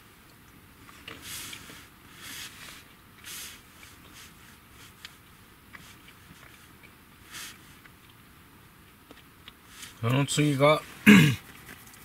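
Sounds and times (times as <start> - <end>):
soft hissing: 0.8 - 7.9.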